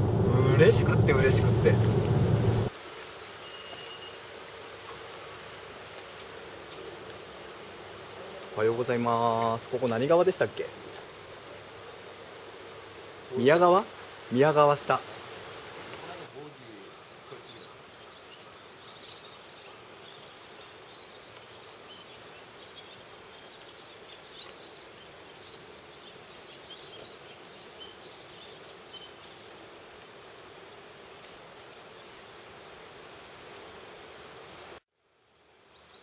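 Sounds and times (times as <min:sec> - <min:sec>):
faint outdoor hiss: 0:00.0 - 0:36.0
small birds chirping: 0:16.0 - 0:33.5.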